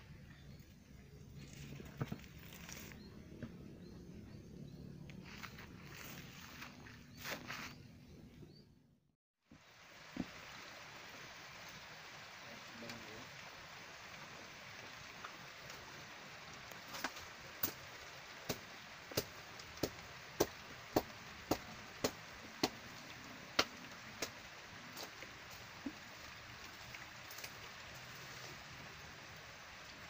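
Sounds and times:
rain falling on a river: 0:09.4 - 0:30.0.

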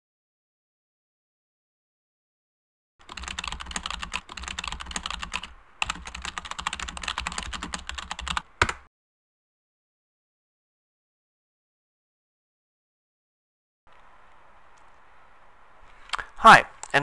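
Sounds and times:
fast typing on keyboard: 0:03.0 - 0:08.8.

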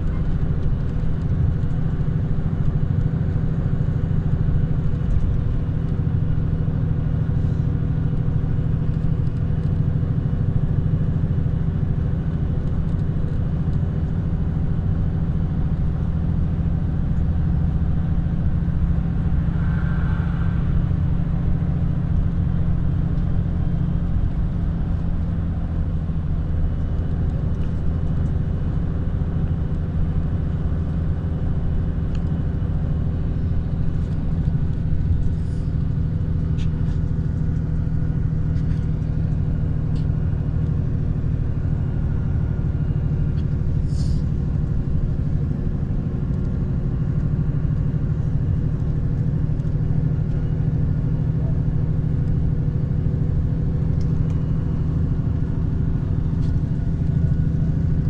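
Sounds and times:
vehicle engine and road noise: 0:00.0 - 0:58.0
faint higher tone: 0:19.2 - 0:22.1.

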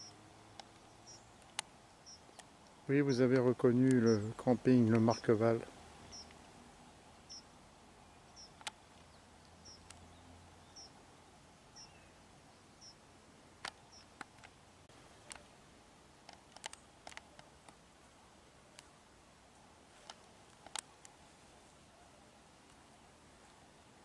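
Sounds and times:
faint clicks and ticks: 0:00.0 - 0:05.3, 0:08.4 - 0:10.1, 0:13.6 - 0:15.5, 0:16.2 - 0:17.8, 0:19.9 - 0:21.2
small bird chirping: 0:00.0 - 0:05.4, 0:06.0 - 0:06.4, 0:07.2 - 0:11.0, 0:11.7 - 0:13.0, 0:13.7 - 0:14.4.

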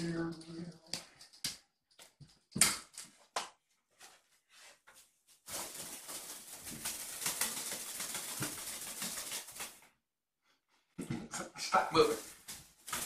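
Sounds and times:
crinkly material rustling: 0:03.9 - 0:09.8, 0:12.0 - 0:13.0.

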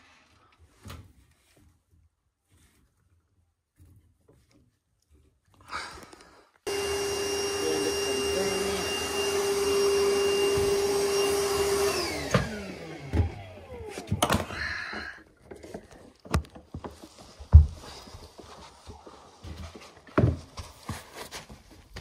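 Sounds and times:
wet vac motor running: 0:06.7 - 0:14.5.

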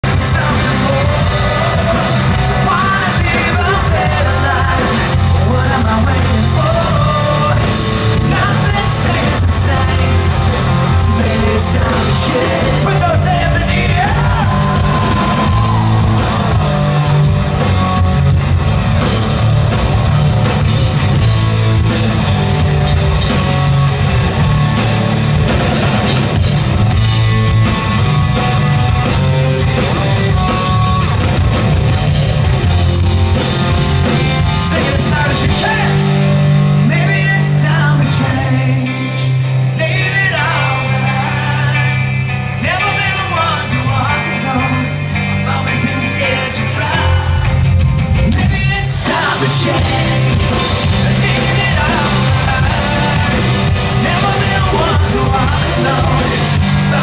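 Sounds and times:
person singing: 0:00.0 - 0:17.2, 0:34.0 - 0:57.0
live rock band playing: 0:00.0 - 0:57.0.

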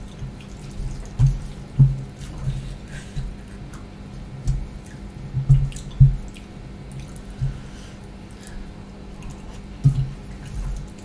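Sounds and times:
wet chewing: 0:04.5 - 0:11.0.

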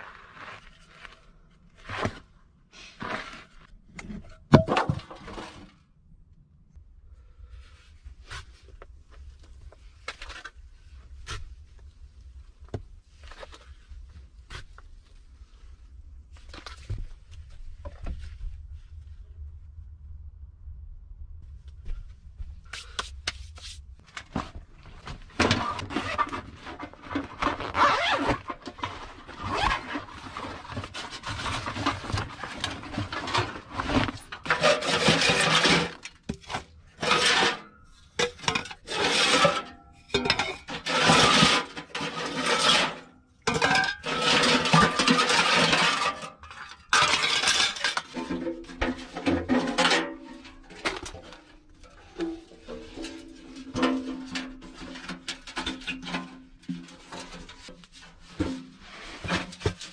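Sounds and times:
sheet metal scraping and clinking: 0:25.4 - 0:59.9.

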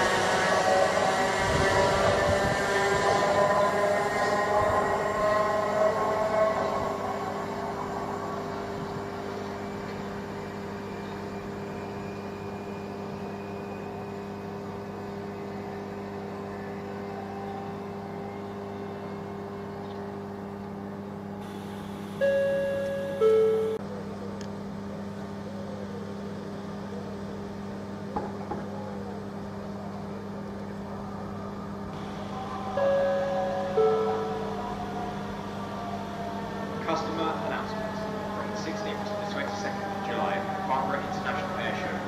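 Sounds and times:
electric train motor whine: 0:00.0 - 0:25.4, 0:28.6 - 0:42.0
steady low hum: 0:04.7 - 0:42.0
loud two-note tone: 0:21.4 - 0:23.8, 0:32.0 - 0:35.1.

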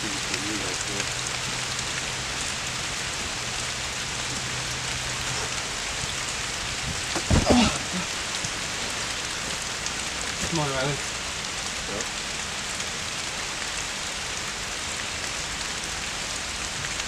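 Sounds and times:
steady rain falling: 0:00.0 - 0:17.0
short thumps: 0:06.8 - 0:08.0.

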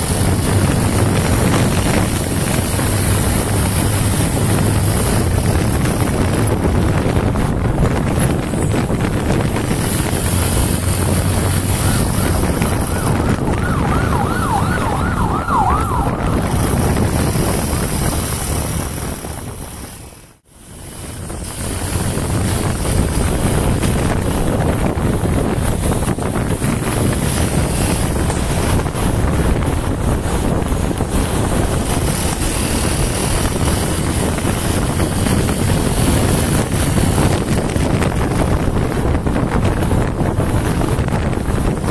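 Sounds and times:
motorcycle engine running: 0:00.0 - 0:41.9
wind on microphone: 0:00.0 - 0:41.9
siren yelping: 0:11.8 - 0:16.8.

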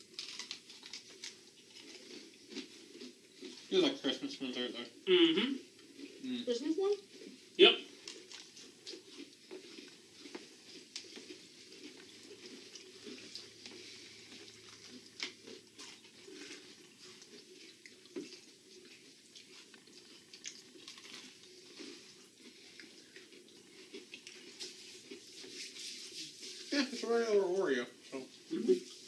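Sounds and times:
faint chewing of cookies: 0:00.0 - 0:29.0
rustling: 0:07.0 - 0:29.0.

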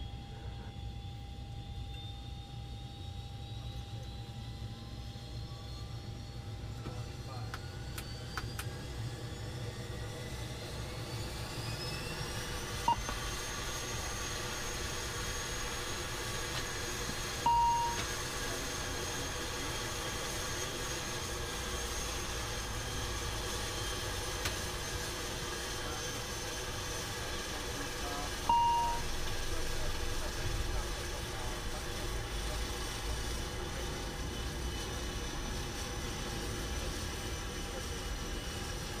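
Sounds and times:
turboprop engine whine: 0:00.0 - 0:39.0
short beep: 0:17.5 - 0:18.0, 0:28.5 - 0:29.1.

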